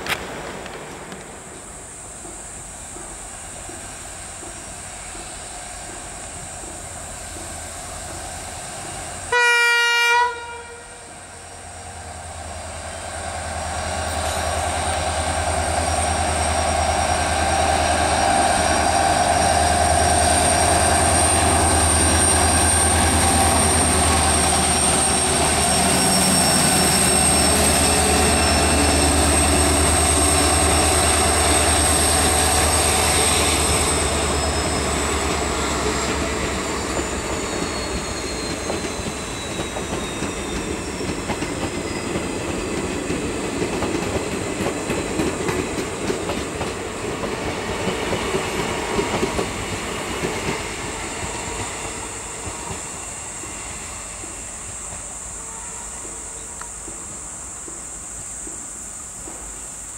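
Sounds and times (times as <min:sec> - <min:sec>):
train coaches rumbling on rails: 0:00.0 - 0:59.9
locomotive horn blast: 0:09.3 - 0:11.1
locomotive engine: 0:11.2 - 0:54.3.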